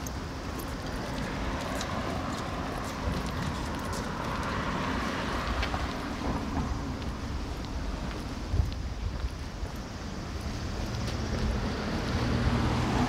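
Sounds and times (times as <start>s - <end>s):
footsteps on pavement: 0.0s - 13.0s
passing vehicle rushing: 10.6s - 13.0s.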